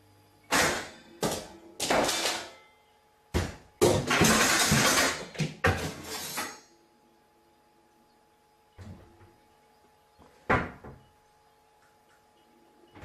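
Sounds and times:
household objects banging and crashing: 3.4s - 6.6s.

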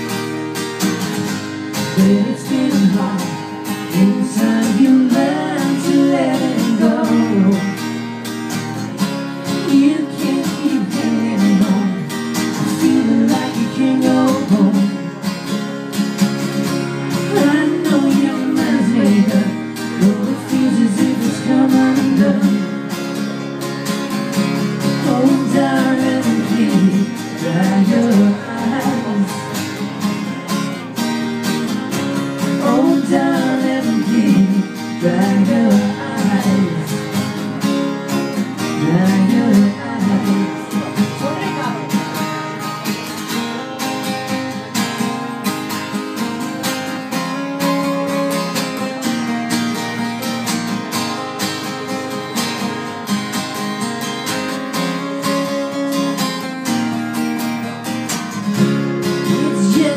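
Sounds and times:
acoustic guitars strummed: 0.0s - 59.9s
person singing: 1.8s - 7.9s, 9.4s - 15.2s, 17.2s - 22.9s, 24.9s - 29.8s, 32.4s - 37.1s, 38.6s - 41.6s, 58.6s - 59.9s.

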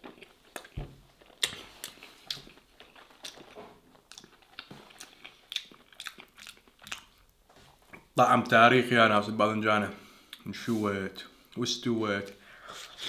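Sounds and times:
mouth clicks and smacks: 0.0s - 7.2s
person chewing food: 0.0s - 8.2s.

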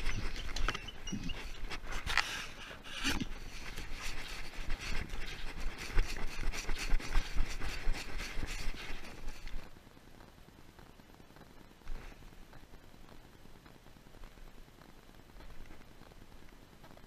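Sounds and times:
dog scratching and scraping: 0.0s - 9.6s.

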